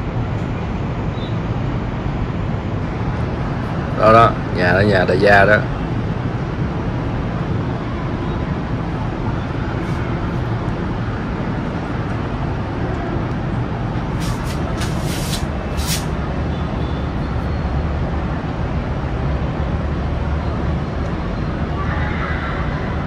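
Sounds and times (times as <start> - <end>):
road and traffic noise: 0.0 - 23.0
vehicle engine rumble: 5.7 - 17.4
short high hisses: 14.1 - 16.1.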